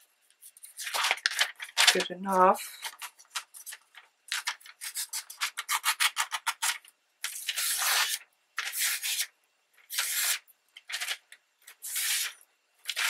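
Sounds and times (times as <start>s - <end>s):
paper rubbing and sliding: 0.4s - 3.8s, 4.4s - 9.3s, 11.8s - 13.0s.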